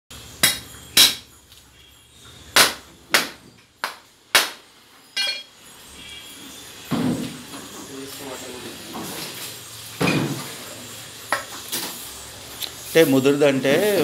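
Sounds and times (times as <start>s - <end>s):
cleaver chopping on wooden block: 0.4s - 1.2s, 2.6s - 4.6s
metallic ring: 5.0s - 6.3s.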